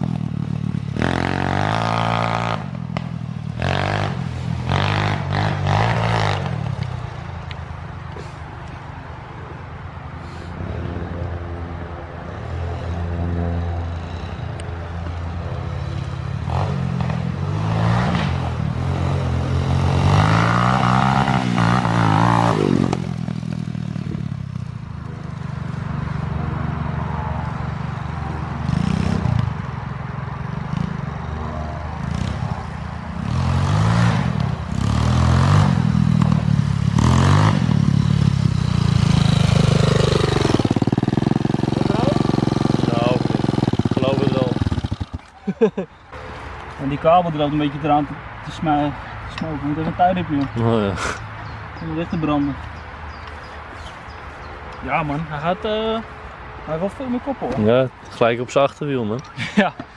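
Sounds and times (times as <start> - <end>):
pit bike engine revving: 0.0 - 7.1, 13.9 - 25.7, 28.5 - 29.6, 32.0 - 45.8.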